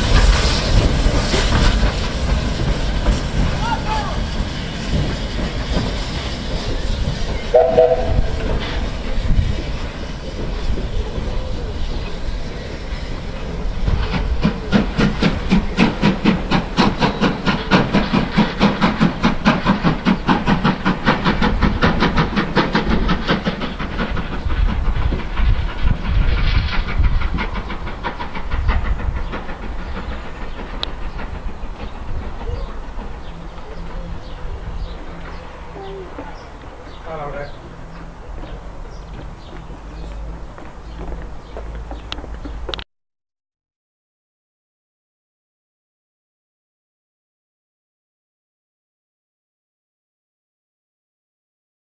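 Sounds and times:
steam locomotive exhaust chuffs: 0.0 - 42.8
rumble of train wheels: 0.0 - 42.9
steam whistle: 7.5 - 8.6.

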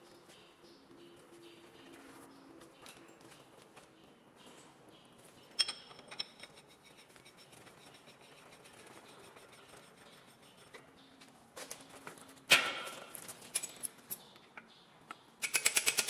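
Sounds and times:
sharp ringing clink: 5.6 - 6.4.

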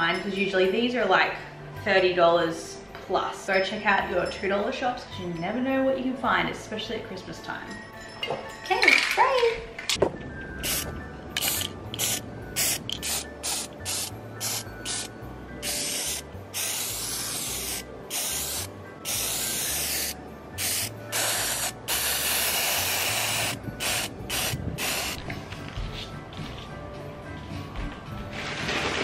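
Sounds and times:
spray can hissing: 10.6 - 25.2.

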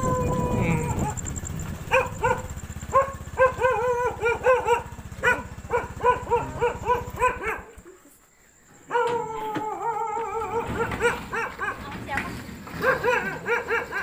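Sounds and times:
dog barking rapidly: 0.0 - 8.0, 8.8 - 12.0, 12.6 - 14.0
motorcycle engine running: 0.0 - 8.2.

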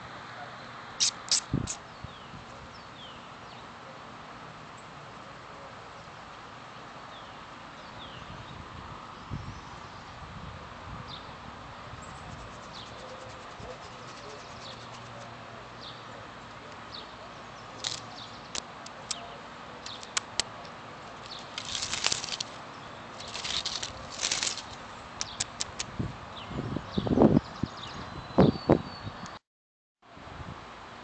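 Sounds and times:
faint outdoor background: 0.0 - 29.4, 30.0 - 31.0
rustling in dry grass and leaves: 17.7 - 19.0, 20.0 - 25.8
sharp clicks: 17.8 - 19.2, 19.8 - 20.6, 23.2 - 25.9.

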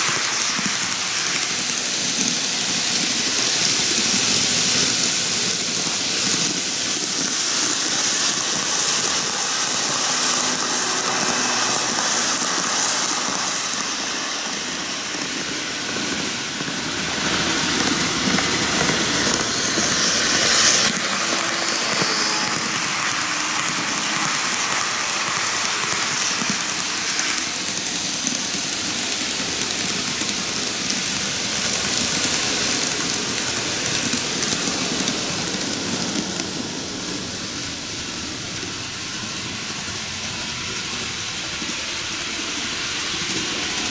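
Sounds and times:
model train wheels rattling: 0.0 - 37.8.

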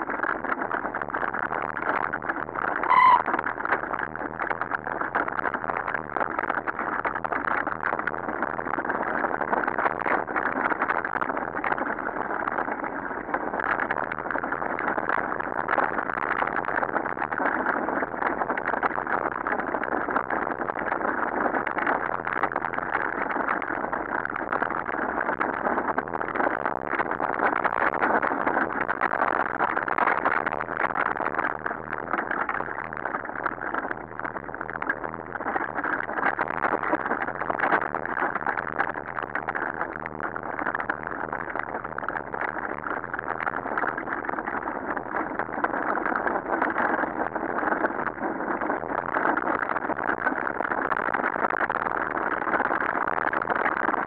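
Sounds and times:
high squeal: 2.8 - 3.4.

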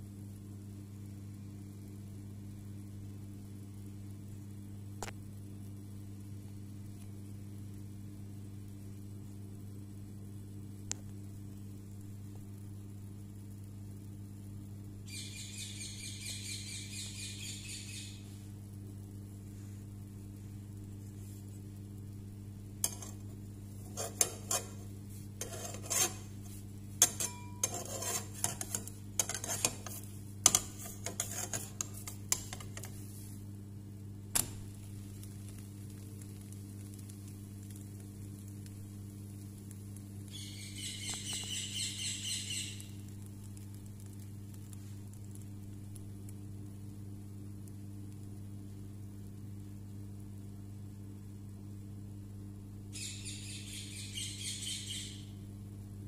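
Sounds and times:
steady low hum: 0.0 - 56.0
spatula scraping frying pan: 22.8 - 23.2, 23.8 - 33.3.

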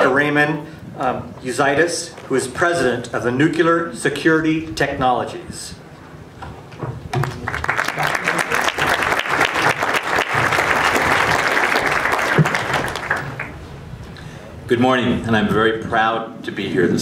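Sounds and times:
audience applauding: 7.2 - 13.6.

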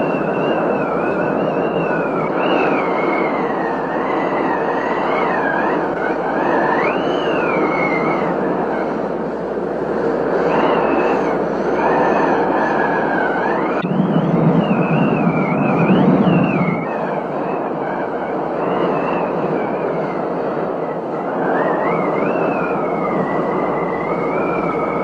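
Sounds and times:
wavering whistle: 0.0 - 9.0, 10.4 - 25.0
wind and heavy rain: 0.0 - 25.0
deep rumble: 13.1 - 16.9.

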